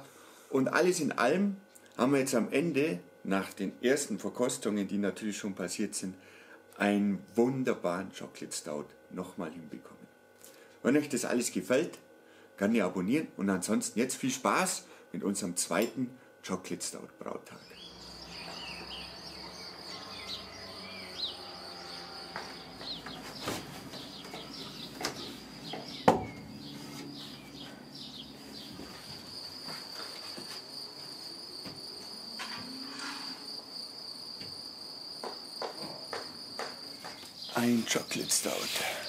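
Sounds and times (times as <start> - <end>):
bird chirps: 17.6 - 30.0
high insect trill: 17.6 - 39.0
sharp knocks: 22.4 - 26.5, 35.2 - 37.3.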